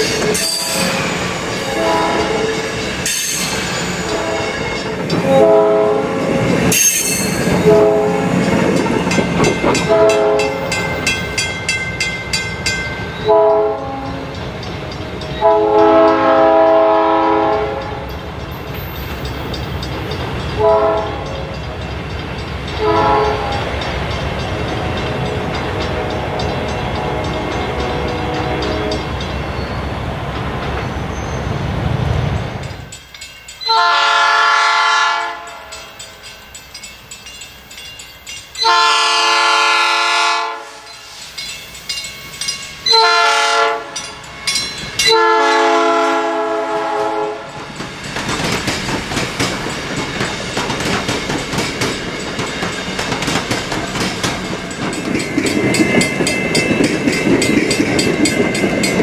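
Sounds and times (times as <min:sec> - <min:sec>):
train rumbling on rails: 0:00.0 - 0:59.0
train chord horn blasts: 0:00.5 - 0:02.6, 0:04.1 - 0:04.6, 0:05.2 - 0:06.4, 0:07.5 - 0:08.4, 0:09.8 - 0:10.8, 0:13.2 - 0:14.4, 0:15.4 - 0:18.1, 0:20.6 - 0:21.8, 0:22.8 - 0:23.8, 0:24.7 - 0:29.1, 0:33.7 - 0:35.9, 0:38.6 - 0:41.0, 0:42.8 - 0:44.1, 0:45.0 - 0:47.6.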